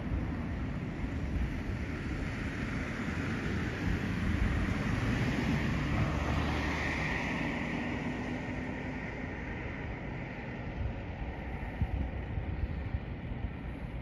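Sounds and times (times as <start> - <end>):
background traffic rumble: 0.0 - 14.0
vehicle passing by: 2.2 - 10.8.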